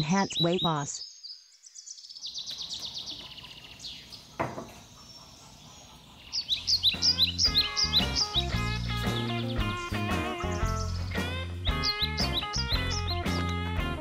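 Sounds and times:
birds chirping: 0.0s - 14.0s
plucked string music with bass: 7.0s - 14.0s.

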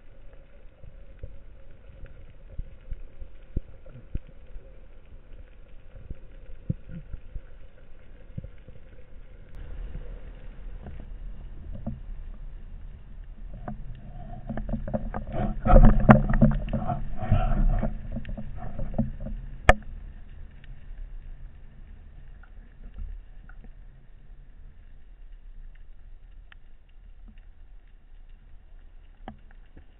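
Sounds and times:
underwater rushing: 0.0s - 29.9s
underwater clicks and knocks: 11.6s - 12.4s, 13.2s - 20.7s.

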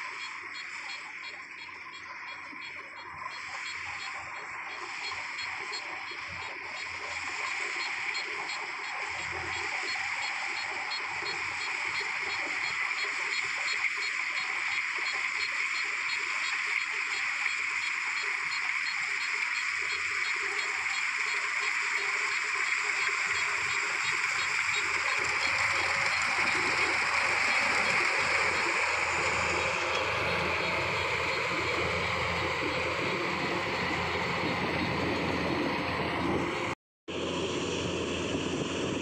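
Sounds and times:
combine harvester whirring: 20.4s - 39.0s.

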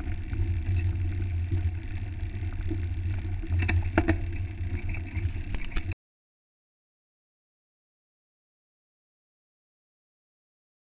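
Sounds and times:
bike rattling over bumps: 0.0s - 6.0s
mountain bike rumble on dirt trail: 0.0s - 6.0s.

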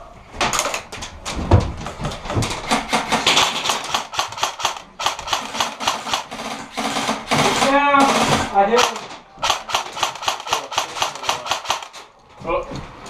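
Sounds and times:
airsoft gunfire rapid clicks: 2.5s - 12.0s.

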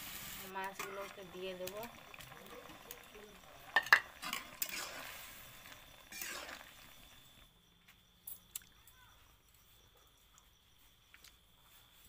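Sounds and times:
faint sizzle: 0.0s - 7.5s.

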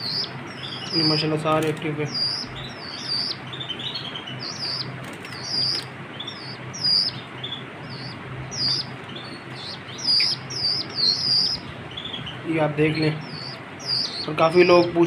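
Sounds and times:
wings fluttering: 0.0s - 12.4s
chicks begging calls: 0.0s - 15.0s
steady low hum: 0.0s - 15.0s
sharp clicks: 5.0s - 5.9s.

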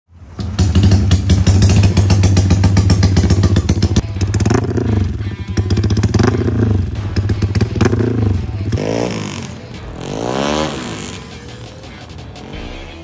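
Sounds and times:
motorcycle engine revving: 0.2s - 13.0s.

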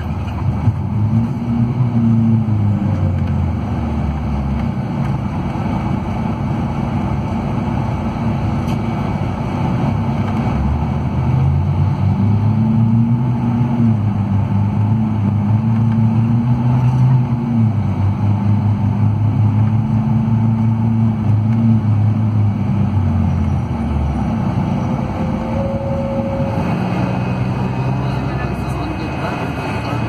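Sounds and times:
diesel bus engine drone: 0.0s - 30.0s.

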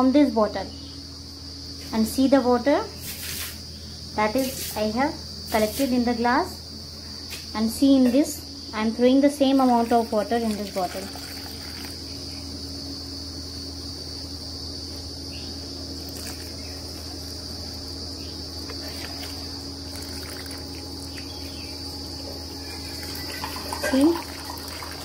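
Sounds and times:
insects trilling: 0.0s - 25.0s
low hum: 0.0s - 25.0s.

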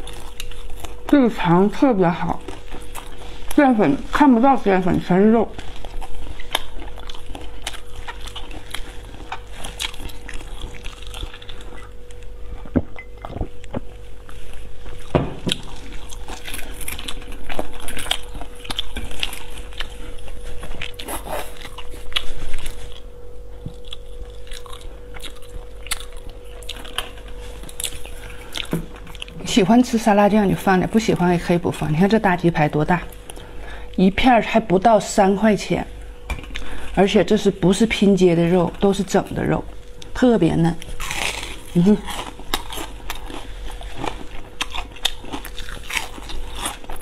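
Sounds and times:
close-up chewing: 0.0s - 29.6s, 38.7s - 47.0s
steady hum: 0.0s - 47.0s.

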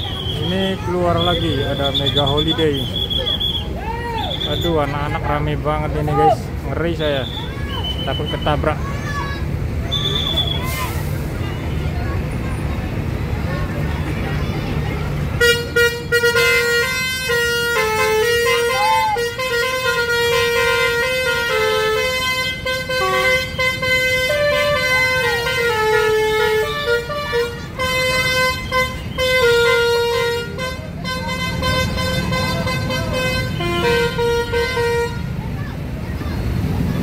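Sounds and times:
multi-tone air horn tune: 15.4s - 35.3s.

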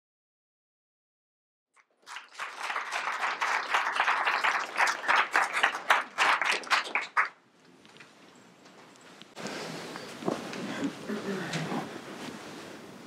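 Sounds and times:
audience applauding: 1.8s - 7.4s.

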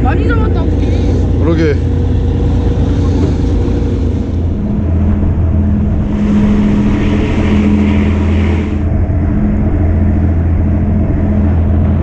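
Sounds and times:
rushing water: 0.0s - 8.9s
boat engine humming: 0.0s - 12.0s.

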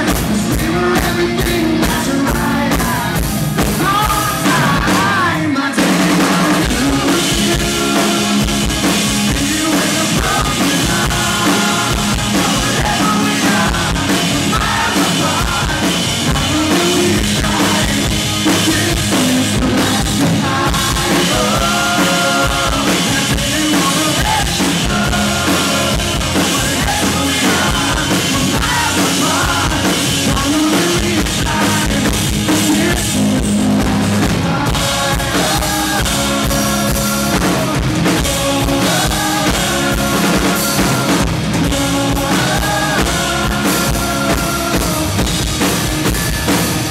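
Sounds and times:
bass guitar: 0.0s - 46.9s
drum kit: 0.0s - 46.9s
electric guitars: 0.0s - 46.9s
male lead vocal: 0.0s - 46.9s.

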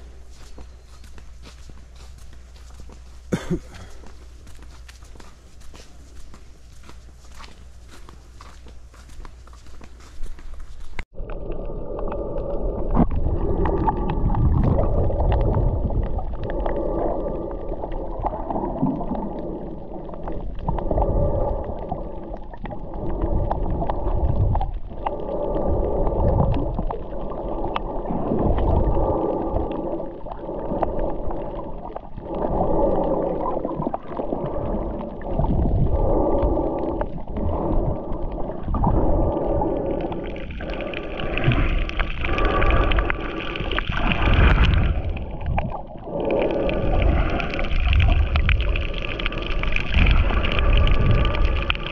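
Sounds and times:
underwater rushing and gurgling: 0.0s - 0.4s, 11.0s - 51.9s.

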